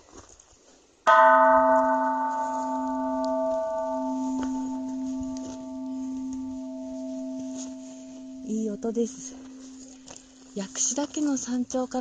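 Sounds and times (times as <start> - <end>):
bell ringing: 1.1 - 11.0.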